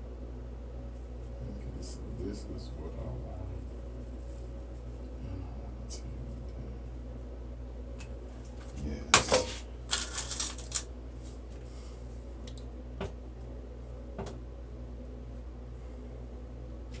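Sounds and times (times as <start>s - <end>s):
steady low hum: 0.0s - 17.0s
rustles and sharp clicks: 9.3s - 10.9s.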